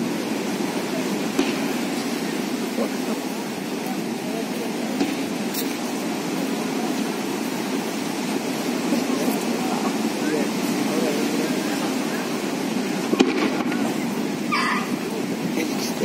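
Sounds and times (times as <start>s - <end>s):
crowd murmur: 0.0s - 16.0s
faint pops: 1.3s - 2.0s, 13.1s - 13.9s.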